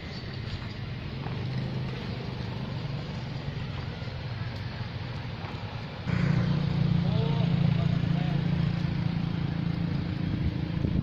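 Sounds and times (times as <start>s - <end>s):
low engine hum: 0.0s - 11.0s
outdoor background noise: 0.0s - 11.0s.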